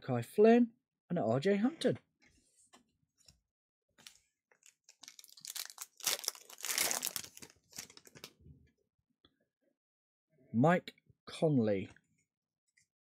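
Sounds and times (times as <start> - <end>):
foil wrapper crinkling: 4.0 - 8.3.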